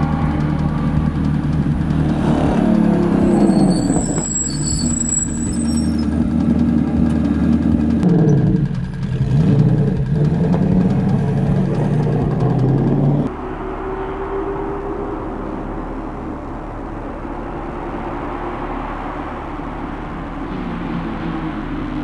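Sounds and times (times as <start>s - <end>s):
race car engine revving: 0.0s - 22.0s.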